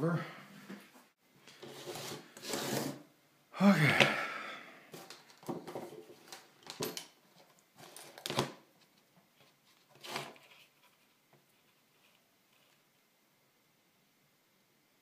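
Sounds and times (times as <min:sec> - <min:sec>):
handling knocks and rustles: 0:04.9 - 0:12.8.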